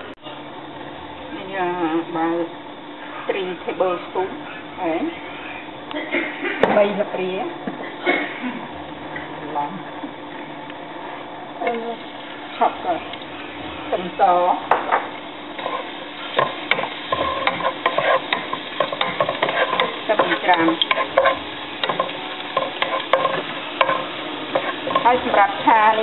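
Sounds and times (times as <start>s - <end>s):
garlic sizzling in oil: 11.6s - 26.0s
spatula scraping and tapping pan: 15.6s - 26.0s.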